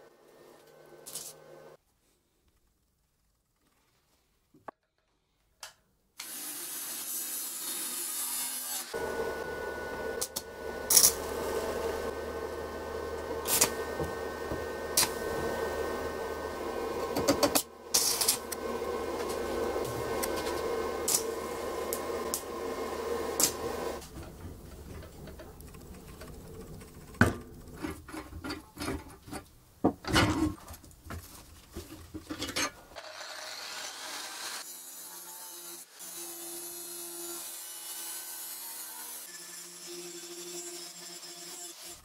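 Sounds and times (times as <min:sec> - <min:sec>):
angle grinder cutting steel: 0:06.2 - 0:26.4, 0:33.0 - 0:42.0
welding arc crackling and hissing: 0:10.2 - 0:24.2.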